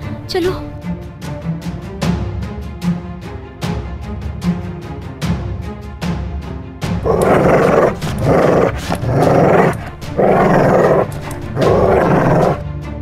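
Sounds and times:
dog growling and barking: 7.0 - 12.6.

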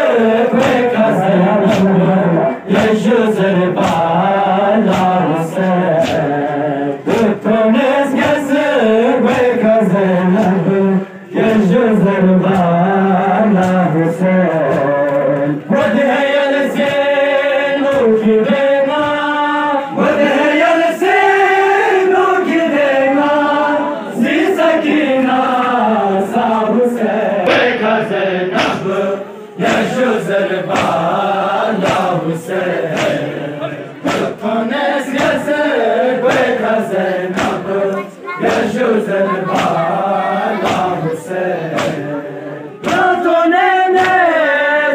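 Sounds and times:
men chanting a lament: 0.0 - 44.9
chest-beating slaps: 0.6 - 2.1, 3.8 - 4.2, 4.8 - 6.5, 10.3 - 10.7, 28.5 - 29.0, 29.6 - 30.0, 30.7 - 31.2, 31.8 - 32.2, 32.9 - 33.3, 34.0 - 34.4, 35.0 - 35.5, 36.2 - 36.6, 37.3 - 40.0, 40.6 - 41.0, 41.7 - 42.1, 42.8 - 43.2, 43.9 - 44.2.

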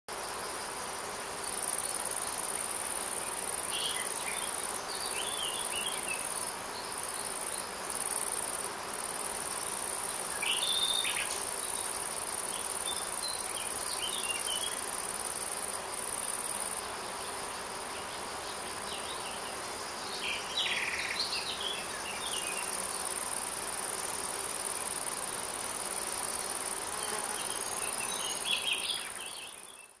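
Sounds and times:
short insect chirps: 1.4 - 17.6.

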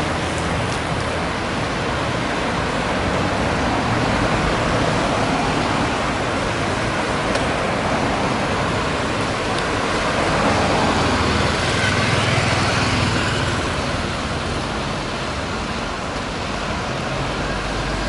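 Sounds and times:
bus engine: 0.0 - 18.0
car engines running: 0.0 - 18.0.

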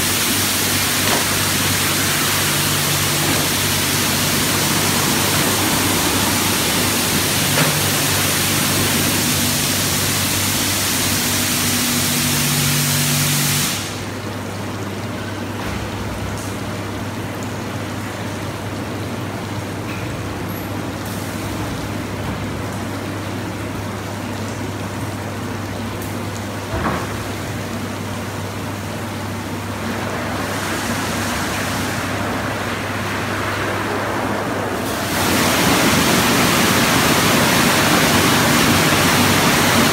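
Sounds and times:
hiss of spraying water: 0.0 - 14.0, 34.8 - 39.9.

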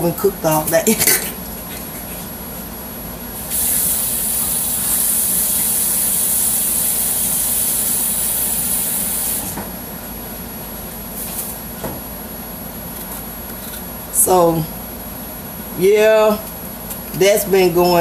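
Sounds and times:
tap water running: 3.5 - 9.5.

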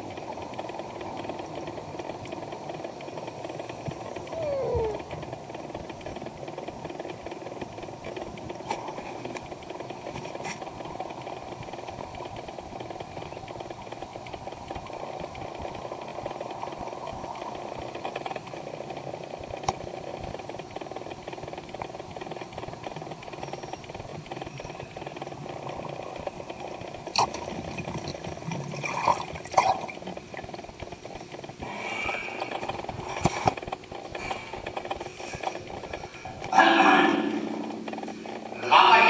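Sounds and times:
sharp underwater clicks: 0.2 - 36.5
underwater crackling hiss: 22.0 - 36.4.

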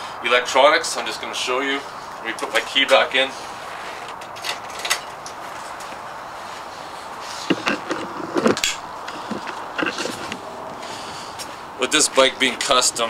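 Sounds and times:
camera handling knocks and rustles: 7.4 - 10.4.

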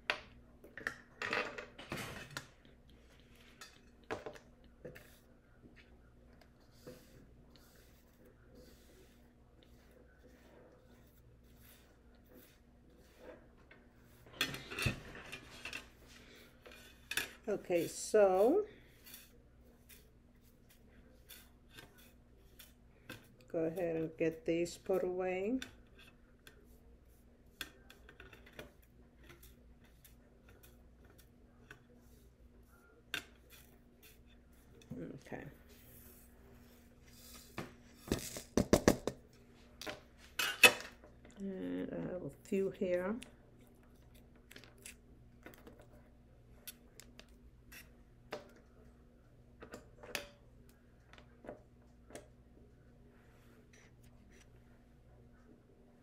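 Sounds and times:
faint steady hum: 0.0 - 56.0.

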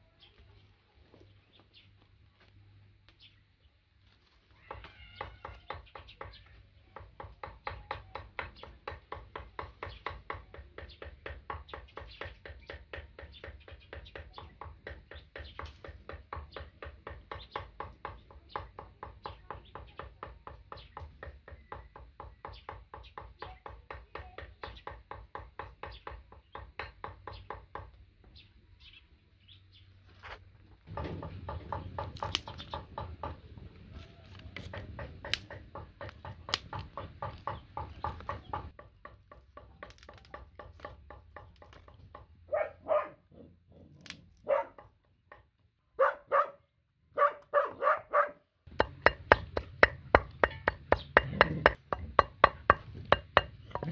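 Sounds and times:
chopping on wooden block: 7.0 - 27.9, 30.9 - 33.5, 34.2 - 42.3, 48.7 - 53.9.

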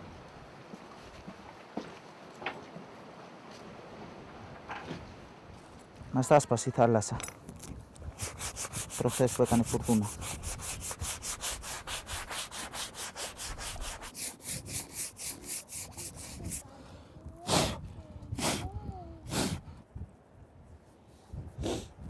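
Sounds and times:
hand saw cutting wood: 8.1 - 16.6.

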